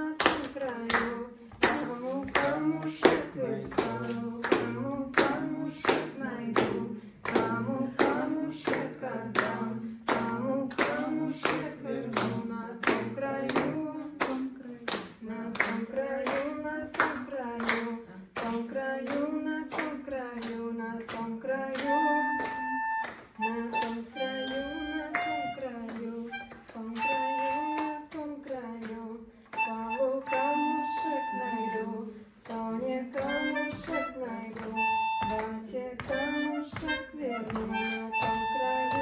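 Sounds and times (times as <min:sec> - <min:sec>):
group of people singing: 0:00.0 - 0:39.0
people clapping along: 0:00.0 - 0:39.0
melodica notes: 0:21.9 - 0:28.1, 0:29.6 - 0:32.0, 0:33.2 - 0:39.0.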